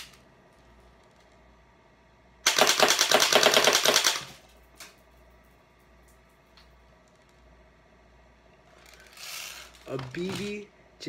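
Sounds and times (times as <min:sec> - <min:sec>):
bb gun firing full-auto: 0:02.4 - 0:04.4.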